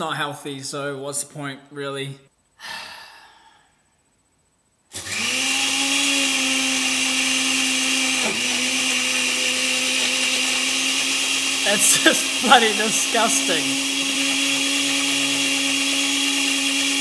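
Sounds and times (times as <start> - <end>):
blender motor running: 4.9 - 17.0.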